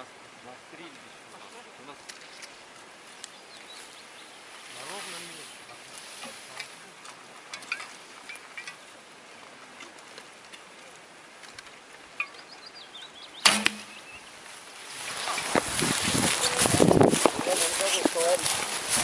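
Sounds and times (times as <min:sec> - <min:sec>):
bow string snap: 0:13.4 - 0:14.0.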